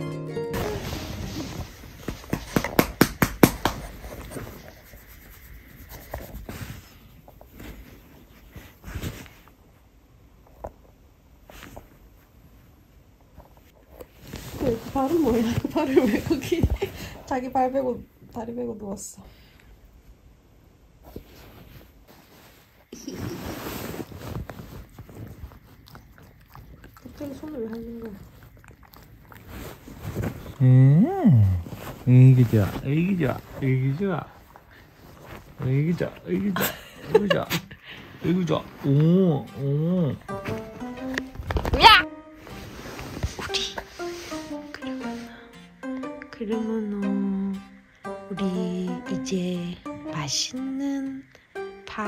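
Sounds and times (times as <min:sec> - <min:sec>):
hand rubbing dog fur: 0:00.6 - 0:09.6, 0:14.1 - 0:16.6, 0:21.1 - 0:25.8, 0:29.1 - 0:30.6, 0:31.7 - 0:37.6, 0:42.4 - 0:45.2
bedding rustling: 0:00.6 - 0:18.0, 0:20.9 - 0:45.4.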